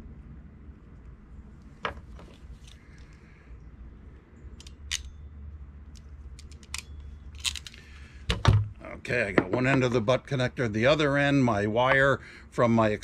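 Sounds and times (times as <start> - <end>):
crimping pliers clicking: 4.6 - 5.1, 5.9 - 7.9.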